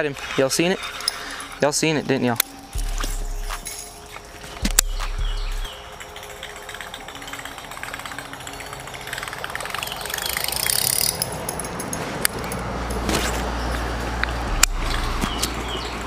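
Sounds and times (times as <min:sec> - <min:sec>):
fishing reel whirring: 0:00.0 - 0:11.6
low rumble: 0:02.8 - 0:05.7, 0:14.0 - 0:16.0.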